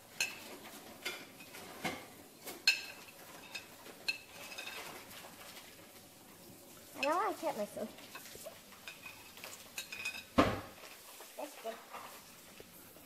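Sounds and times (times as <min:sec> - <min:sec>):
knife clinking on plate: 0:08.9 - 0:10.3.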